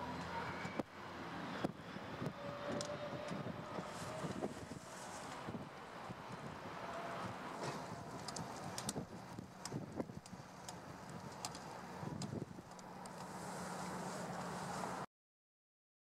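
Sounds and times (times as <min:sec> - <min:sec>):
wind on microphone: 0:01.6 - 0:12.7.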